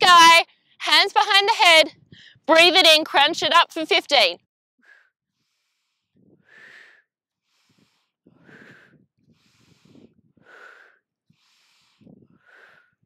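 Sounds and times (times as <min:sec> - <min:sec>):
woman breathing hard: 0:02.1 - 0:02.5, 0:04.8 - 0:13.0.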